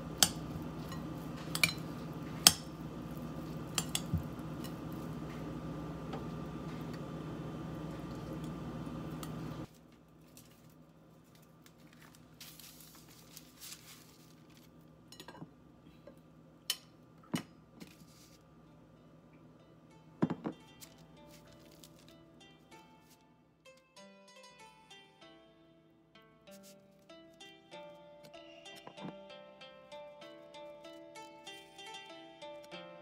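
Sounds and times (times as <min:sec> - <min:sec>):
spoon mashing rice: 0:00.0 - 0:05.3
steady hum: 0:00.0 - 0:09.7
rustling: 0:09.6 - 0:14.9.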